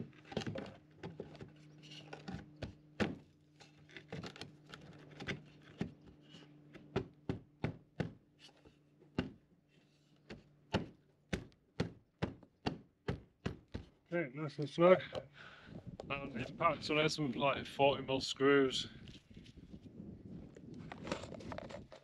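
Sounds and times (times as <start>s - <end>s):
knocks on wood: 10.7s - 13.9s.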